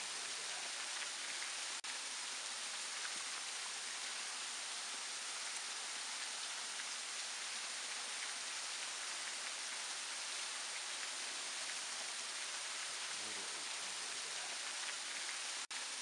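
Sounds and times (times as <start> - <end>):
waterfall splashing: 0.0 - 16.0.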